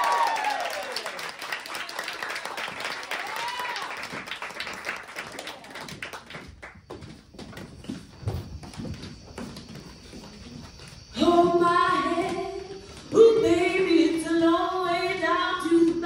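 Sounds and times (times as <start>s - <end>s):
person whooping: 0.0s - 1.1s, 3.1s - 4.1s
audience applauding: 0.0s - 6.8s.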